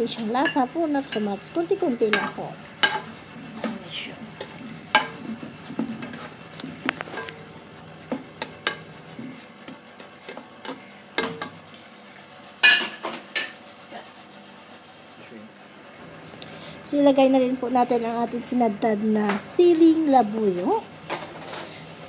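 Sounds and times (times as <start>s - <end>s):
spatula scraping pan: 0.0s - 11.6s.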